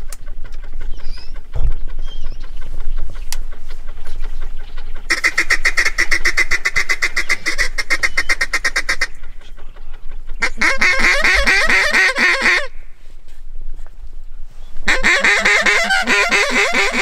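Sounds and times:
duck call quacks: 5.1s - 9.1s, 10.4s - 12.8s, 14.9s - 17.0s
duck call chuckle: 10.4s - 12.7s, 14.9s - 17.0s.

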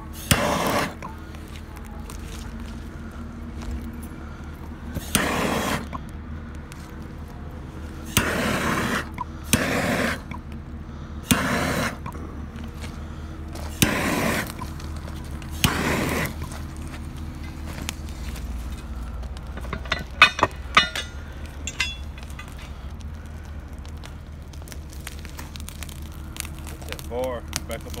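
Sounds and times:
gas torch hissing: 0.0s - 6.2s, 7.5s - 23.7s
gas torch igniter click: 5.0s - 6.0s, 8.1s - 10.4s, 11.3s - 12.2s, 13.7s - 14.8s, 15.5s - 16.5s.

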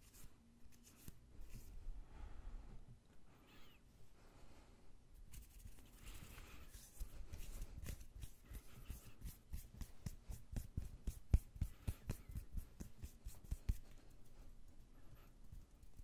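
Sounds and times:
hands rubbing and patting: 0.0s - 1.8s, 5.2s - 16.0s.

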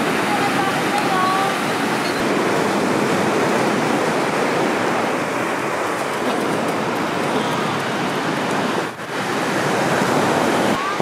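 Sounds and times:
ocean surf breaking on beach: 0.0s - 11.0s.

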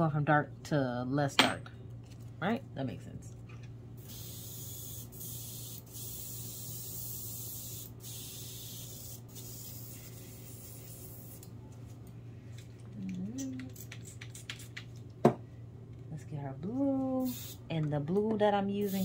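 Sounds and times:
airbrush spraying hiss: 4.0s - 11.4s, 17.2s - 17.6s.

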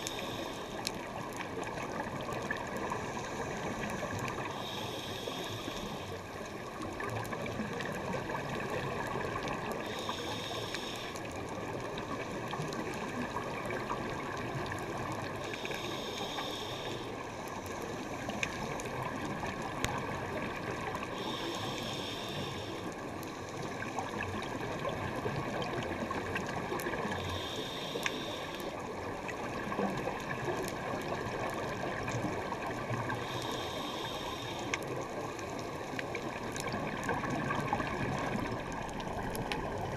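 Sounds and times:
diving regulator hiss: 0.0s - 0.8s, 4.5s - 6.2s, 9.8s - 11.2s, 15.5s - 17.2s, 21.2s - 22.9s, 27.1s - 28.7s, 33.2s - 34.8s
water rushing with bubbles: 0.0s - 39.9s.

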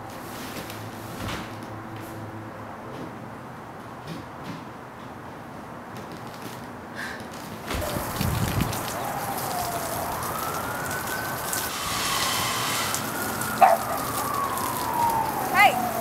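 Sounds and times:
water spraying from garden hose: 7.6s - 16.0s.

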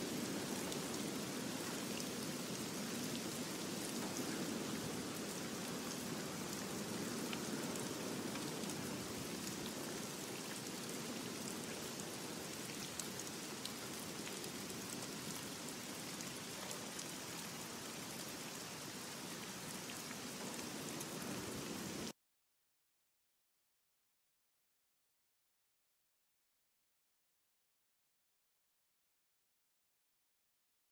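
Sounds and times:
rain-like hiss: 0.0s - 22.2s.

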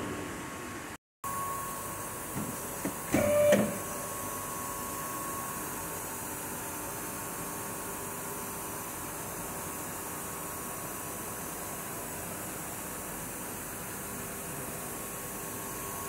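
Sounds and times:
car lift motor whirr: 1.4s - 5.7s.

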